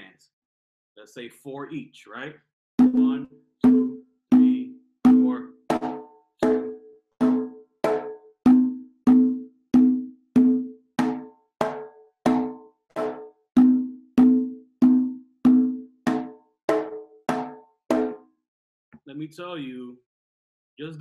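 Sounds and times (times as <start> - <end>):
conga open tones: 2.8 - 18.2.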